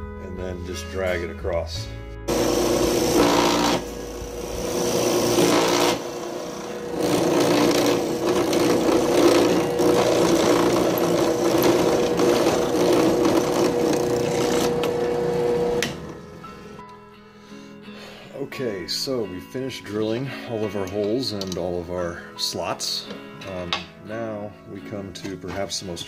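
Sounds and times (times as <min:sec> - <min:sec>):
drill press cutting: 0:02.3 - 0:16.2
motor hum: 0:02.3 - 0:16.2.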